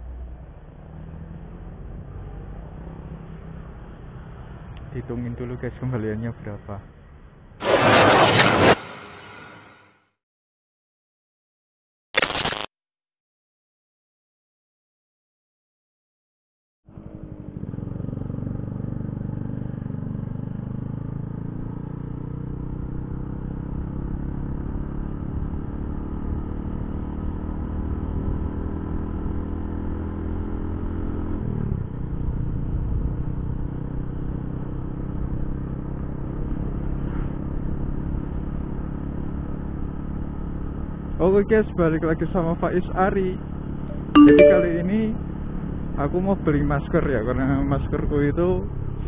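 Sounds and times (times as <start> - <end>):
motorcycle engine running: 17.0 - 21.0.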